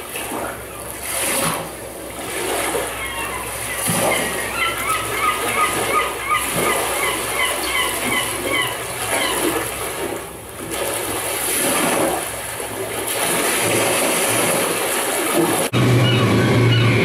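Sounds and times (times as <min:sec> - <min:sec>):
ocean waves washing in: 0:00.0 - 0:17.0
seagulls calling: 0:02.7 - 0:09.8, 0:15.8 - 0:17.0.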